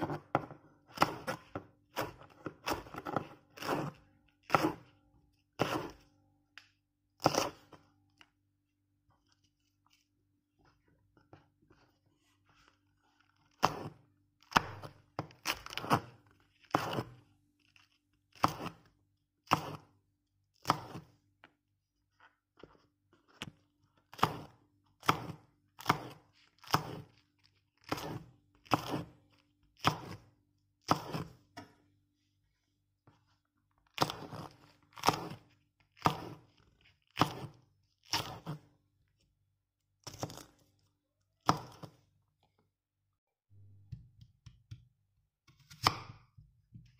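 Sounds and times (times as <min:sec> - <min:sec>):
knife slicing peppers on board: 0:05.6 - 0:06.0, 0:19.5 - 0:19.8, 0:24.1 - 0:27.1, 0:27.8 - 0:29.2, 0:29.8 - 0:30.2, 0:30.8 - 0:31.7, 0:34.0 - 0:35.4, 0:36.0 - 0:36.5, 0:37.1 - 0:38.6, 0:41.4 - 0:42.0, 0:45.5 - 0:46.4.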